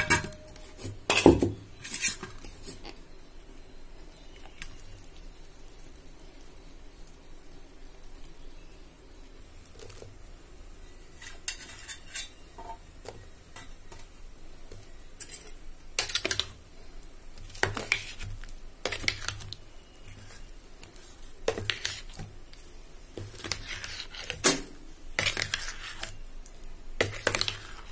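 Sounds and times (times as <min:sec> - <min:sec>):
spoon scraping steel bowl: 0:10.9 - 0:12.7, 0:15.2 - 0:16.5, 0:21.2 - 0:22.2, 0:23.2 - 0:24.4, 0:25.2 - 0:26.2, 0:27.0 - 0:27.9.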